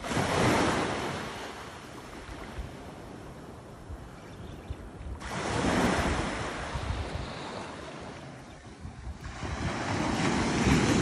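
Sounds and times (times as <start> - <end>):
ocean waves breaking on sand: 0.0 - 4.3, 5.1 - 11.0
wind noise on microphone: 2.2 - 11.0.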